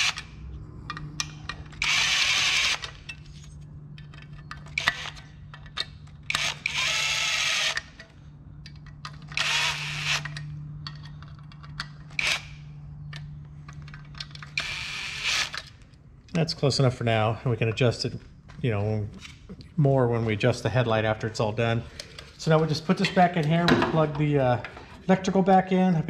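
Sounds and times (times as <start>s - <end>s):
cordless drill driving screws: 1.8s - 3.0s, 6.3s - 7.9s, 9.4s - 10.4s.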